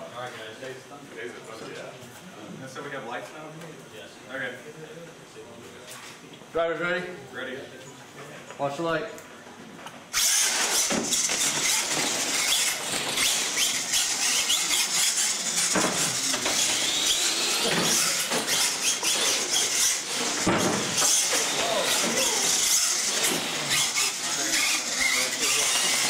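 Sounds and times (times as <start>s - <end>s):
electric motors whining: 10.1s - 26.0s.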